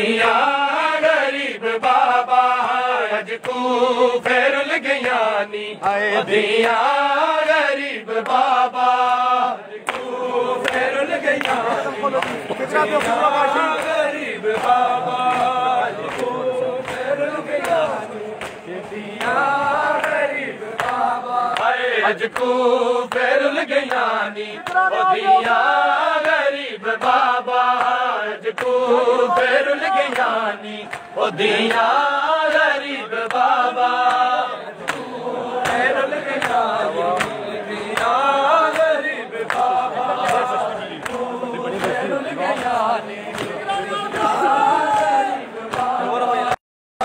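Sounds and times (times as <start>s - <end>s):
men chanting a lament: 0.0s - 46.6s.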